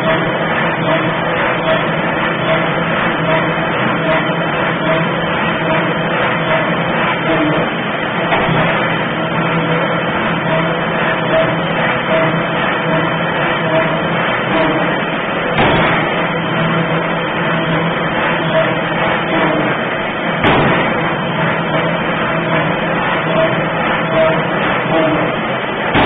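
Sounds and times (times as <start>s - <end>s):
machinery din: 0.0s - 26.0s
forging hammer striking metal: 15.5s - 25.3s.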